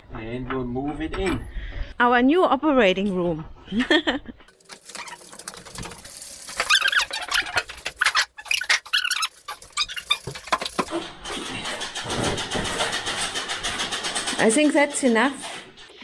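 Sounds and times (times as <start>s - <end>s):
high squeaks: 4.8s - 11.0s.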